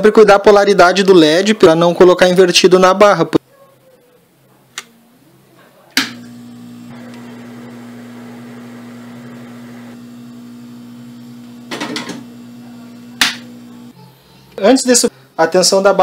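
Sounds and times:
hot air blower humming: 6.0 - 14.0.

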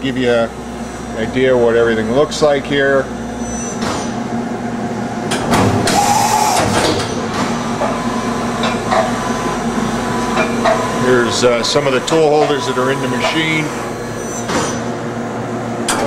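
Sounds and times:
axis drive whine: 0.0 - 16.0
machine hum: 0.0 - 16.0
machine clicks and knocks: 5.3 - 6.0, 6.6 - 8.0.

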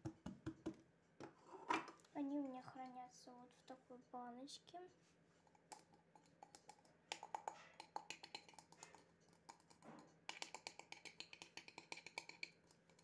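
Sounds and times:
plastic jar clicking: 5.6 - 13.0.

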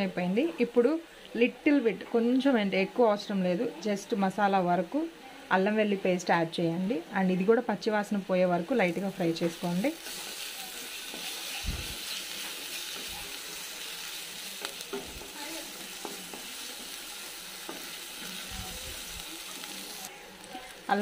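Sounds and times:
onions sizzling in hot oil: 5.8 - 21.0.

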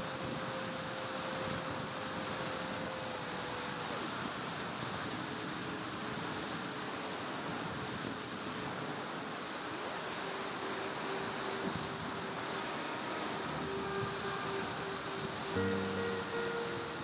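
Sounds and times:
electric ducted fans whining: 0.0 - 17.0
faint steady tone: 0.0 - 17.0
rushing air: 7.9 - 17.0.

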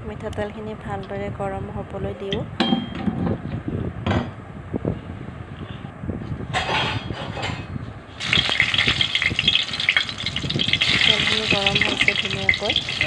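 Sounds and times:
hot oil crackling: 8.2 - 13.0
oil hissing and sizzling: 8.2 - 13.0.

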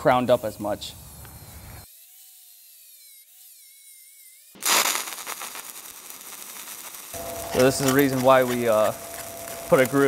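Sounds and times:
welding arc crackle and sizzle: 0.0 - 10.0
angle grinder whining: 7.1 - 10.0.

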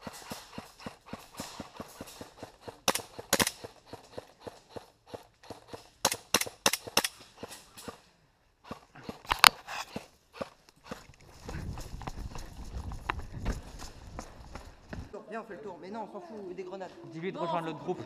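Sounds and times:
airsoft guns firing: 0.0 - 4.1, 6.0 - 8.0
quick footsteps: 8.7 - 15.2.

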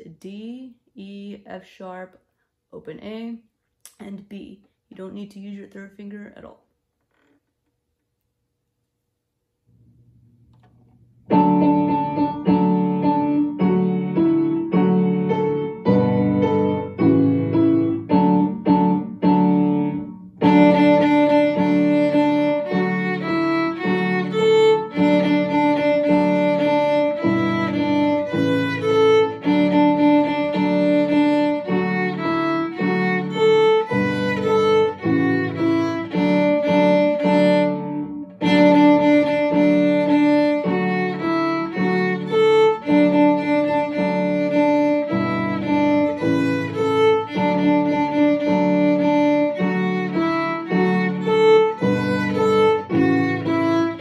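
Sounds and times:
piano accompaniment: 9.8 - 54.0
violin melody: 11.3 - 54.0.

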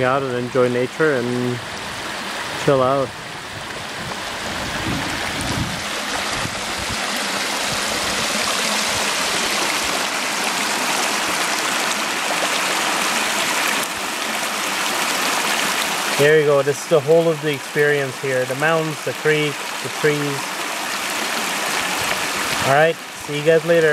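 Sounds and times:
creek babbling over rocks: 0.0 - 23.9.

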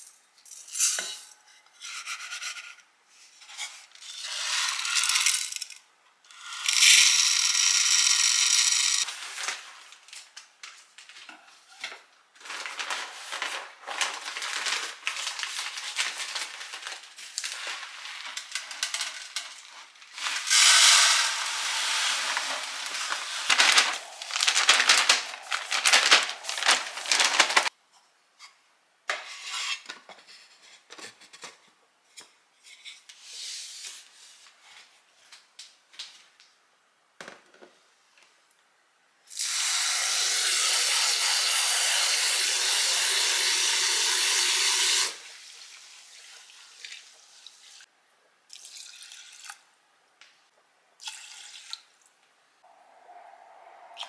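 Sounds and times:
paper bag crinkling: 9.0 - 11.3, 12.3 - 27.7.

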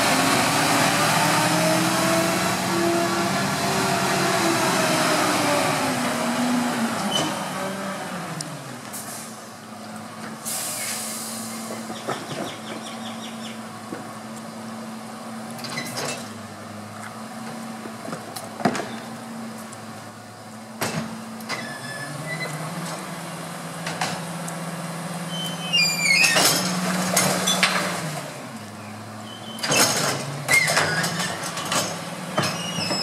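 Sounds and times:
air hiss: 10.4 - 11.7
clanks and knocks from bins: 29.6 - 33.0.

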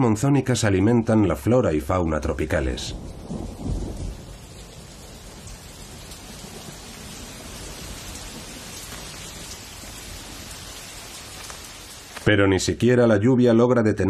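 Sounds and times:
heavy rain falling: 0.6 - 13.0
thunder rumble: 2.0 - 12.2.

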